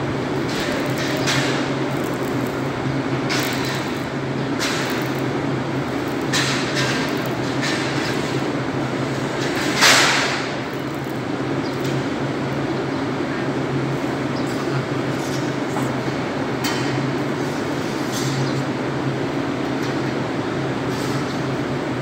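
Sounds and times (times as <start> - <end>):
low machinery hum: 0.0 - 22.0.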